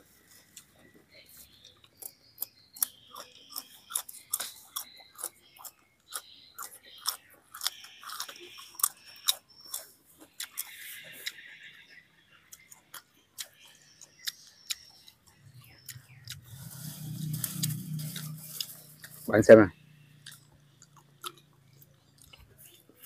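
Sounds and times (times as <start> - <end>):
close chewing and crunching: 0.0 - 23.0
low hum: 15.2 - 22.6.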